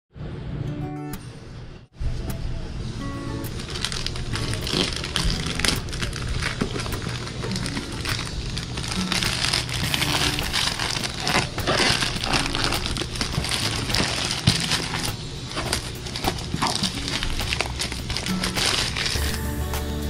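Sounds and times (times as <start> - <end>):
faint background music: 0.2 - 20.0
plastic mailer crinkling and tearing: 3.5 - 19.5.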